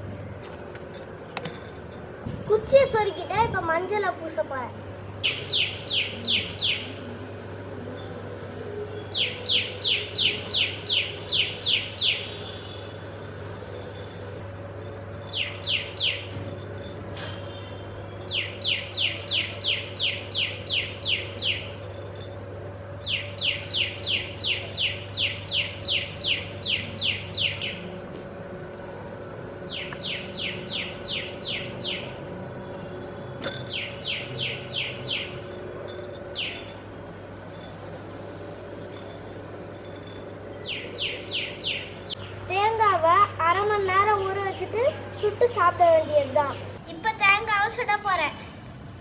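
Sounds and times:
steady low hum: 0:00.0 - 0:49.0
high chirping call: 0:05.2 - 0:07.1, 0:09.0 - 0:12.9, 0:15.2 - 0:16.4, 0:17.5 - 0:21.9, 0:23.0 - 0:28.0, 0:29.6 - 0:32.3, 0:33.6 - 0:37.9, 0:38.6 - 0:42.5.

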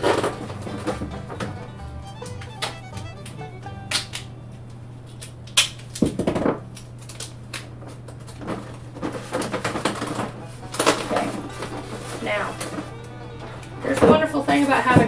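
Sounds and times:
low hum: 0:00.0 - 0:05.9
duct tape crackling: 0:00.0 - 0:06.0, 0:06.7 - 0:15.0
tape click: 0:00.2 - 0:05.7.

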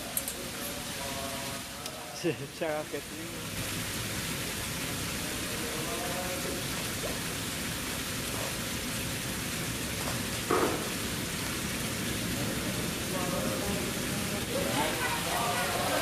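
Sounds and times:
falling water hiss: 0:00.0 - 0:16.0.

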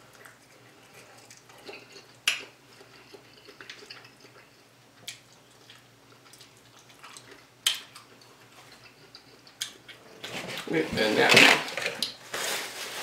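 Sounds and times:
wet clicks of eating shrimp: 0:01.3 - 0:10.0.

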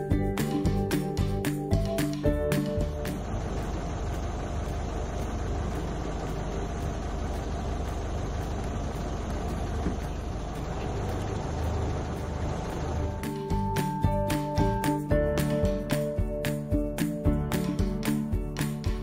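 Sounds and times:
vehicle engine idling: 0:01.7 - 0:16.8.

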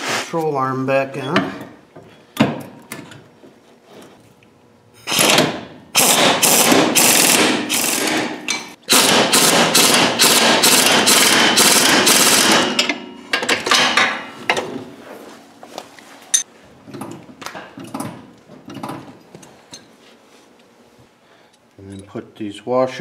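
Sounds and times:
loud rapid hammering: 0:05.1 - 0:13.1.

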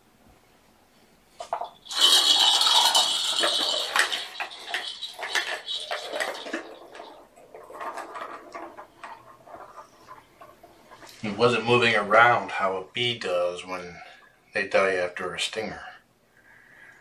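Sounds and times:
balls rattling in plastic toy track: 0:01.4 - 0:11.6.

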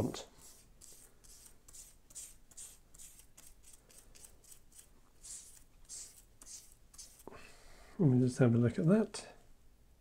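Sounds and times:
paintbrush scrubbing plastic: 0:00.0 - 0:07.3.

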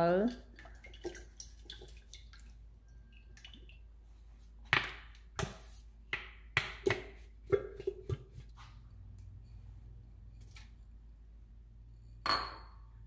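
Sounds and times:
bottles clinking on steel pot: 0:12.2 - 0:12.8.

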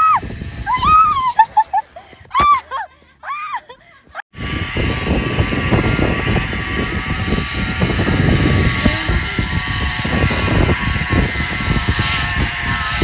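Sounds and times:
wind buffeting microphone: 0:00.0 - 0:01.5, 0:04.3 - 0:13.0
zip-line trolley whirring: 0:00.0 - 0:13.0.

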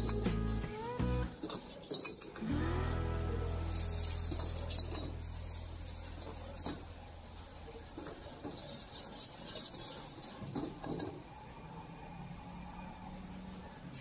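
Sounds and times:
ladle clanking against wok: 0:01.3 - 0:02.4, 0:07.7 - 0:11.3
ladle scraping rice in wok: 0:01.4 - 0:02.5, 0:03.8 - 0:11.2.

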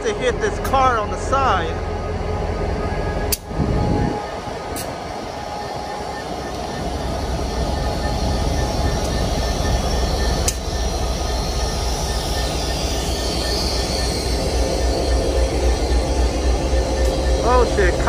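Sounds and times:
diesel locomotive idling: 0:00.0 - 0:18.0.

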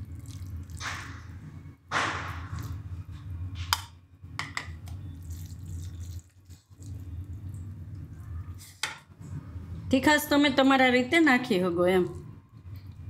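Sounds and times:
low hum: 0:00.0 - 0:13.0.

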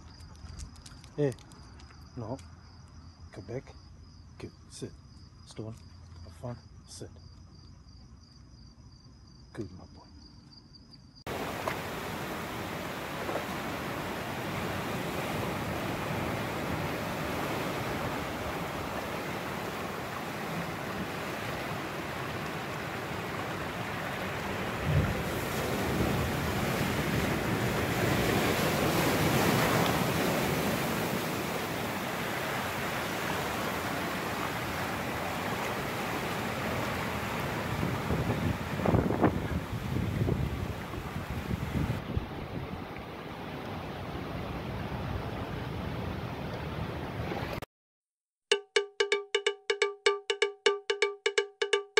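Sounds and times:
surf washing over rocks: 0:11.3 - 0:47.6
wind buffeting microphone: 0:24.1 - 0:32.1, 0:36.5 - 0:43.0.

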